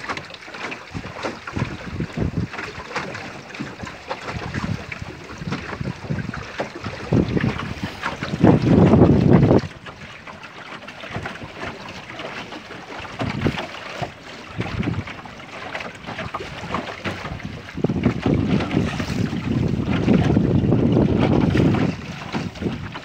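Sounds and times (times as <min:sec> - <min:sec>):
wind buffeting microphone: 0:00.9 - 0:10.3, 0:12.9 - 0:23.0
sailboat hiss through water: 0:07.1 - 0:08.7.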